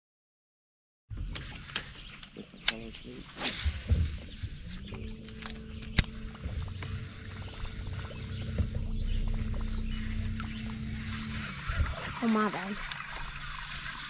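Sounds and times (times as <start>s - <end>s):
electric trolling motor humming: 3.8s - 14.0s
fishing tackle clicking and knocking: 4.8s - 7.0s.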